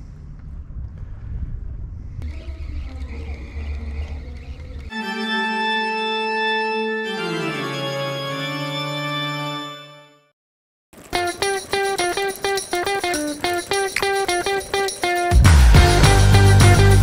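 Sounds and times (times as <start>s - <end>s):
wind noise on microphone: 0.0s - 4.9s
organ chord: 4.9s - 10.3s.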